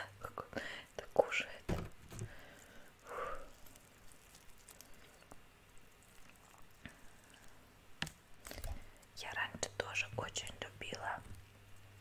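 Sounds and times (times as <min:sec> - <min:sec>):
fried chicken crackling torn apart: 0:03.5 - 0:07.5.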